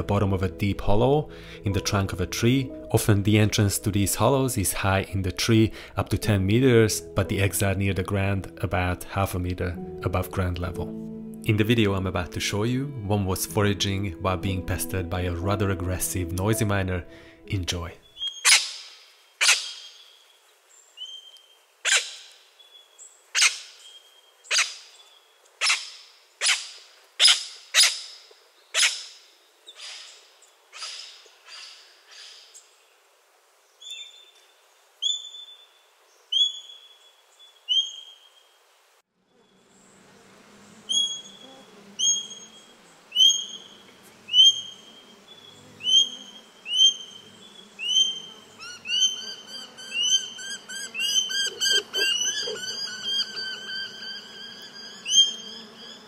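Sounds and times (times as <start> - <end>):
high whistled bird notes: 18.0 - 20.1, 40.9 - 41.4, 42.0 - 42.6, 43.2 - 56.0
parrot harsh shrill calls: 18.1 - 20.0, 21.8 - 22.2, 25.6 - 25.8, 27.2 - 28.1, 47.8 - 56.0.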